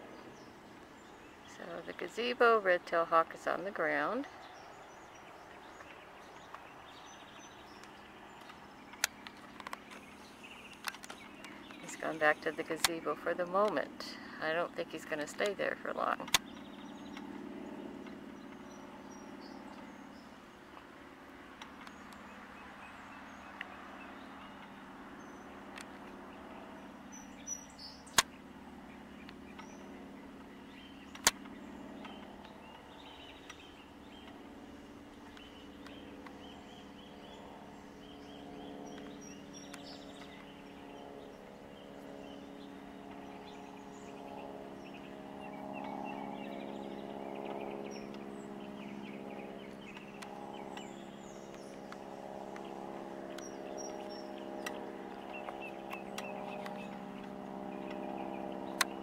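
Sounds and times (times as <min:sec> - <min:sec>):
steady mechanical hum: 0:00.0 - 0:59.0
sharp clicks: 0:07.7 - 0:12.0, 0:16.2 - 0:17.4, 0:31.1 - 0:32.8, 0:53.3 - 0:58.0, 0:58.7 - 0:59.0.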